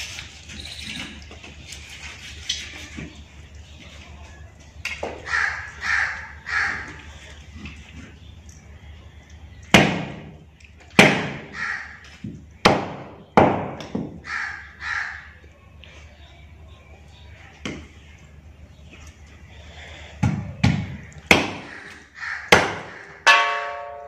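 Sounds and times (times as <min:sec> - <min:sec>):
crow cawing: 0:05.2 - 0:07.1, 0:11.4 - 0:12.0, 0:14.2 - 0:15.4, 0:21.4 - 0:23.3.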